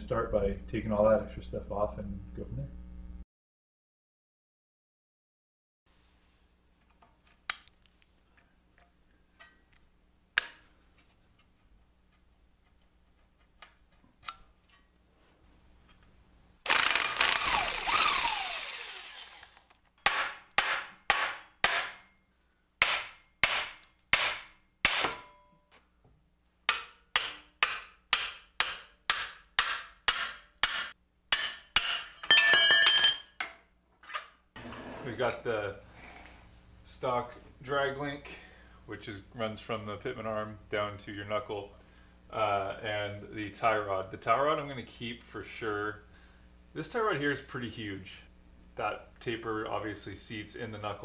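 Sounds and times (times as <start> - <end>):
power tool burst: 16.6 - 19.8
hammer striking steel: 20.0 - 22.2, 22.8 - 25.6, 26.7 - 33.3.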